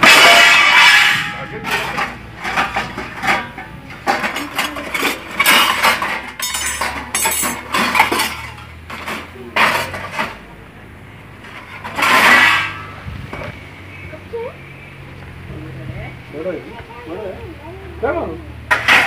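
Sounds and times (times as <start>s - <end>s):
metal hook prodding dishes: 0.0s - 10.3s
metal dishes clattering in a basket: 0.0s - 10.5s, 11.4s - 13.5s, 18.7s - 19.0s.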